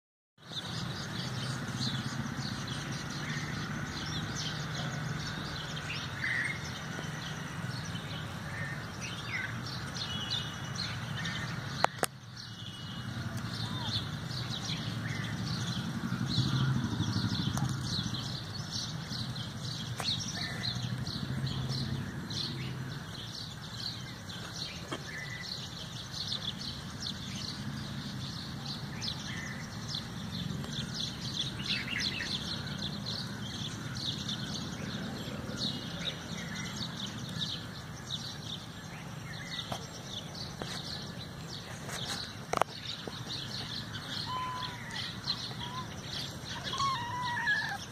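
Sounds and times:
small birds chirping: 0.4s - 47.9s.

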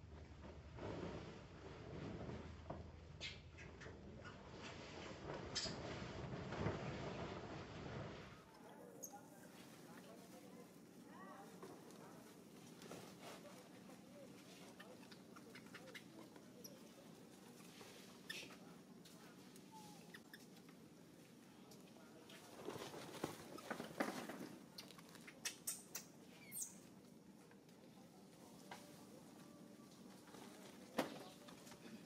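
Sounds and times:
soft rustle: 4.4s - 25.4s
monkeys scuffling on floor: 8.9s - 25.4s
monkey squeak: 25.4s - 26.8s.

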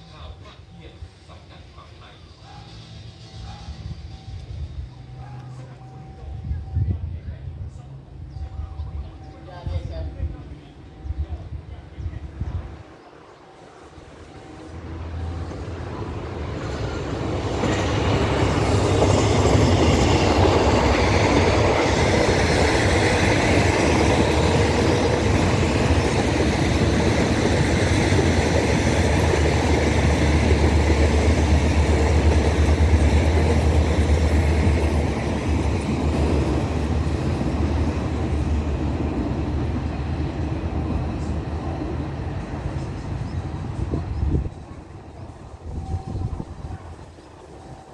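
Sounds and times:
low hum of locomotive: 0.0s - 47.9s
train passing: 0.0s - 47.9s.

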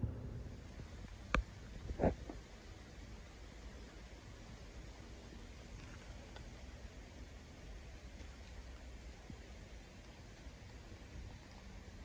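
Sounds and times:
wind rumble on microphone: 0.0s - 4.7s
steady outdoor hiss: 0.0s - 12.0s.

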